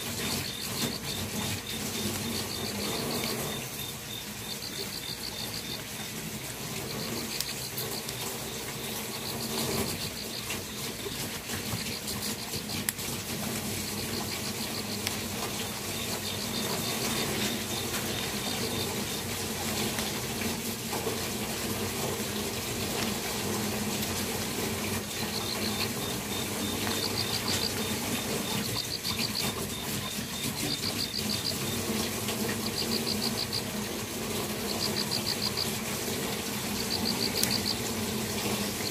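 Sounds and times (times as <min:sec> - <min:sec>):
insects chirping in trills: 0:00.0 - 0:38.9.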